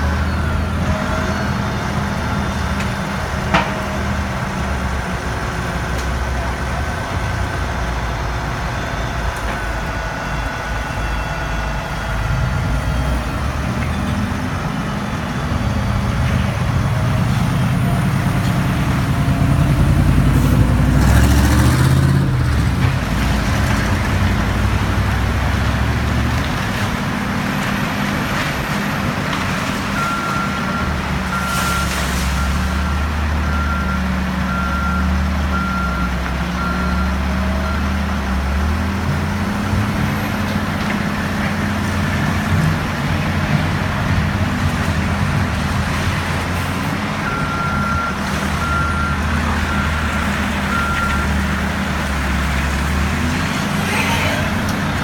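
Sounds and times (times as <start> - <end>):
reversing beeper: 0.0 - 2.8, 7.7 - 22.6, 29.9 - 38.0
truck diesel engine running: 0.0 - 31.4.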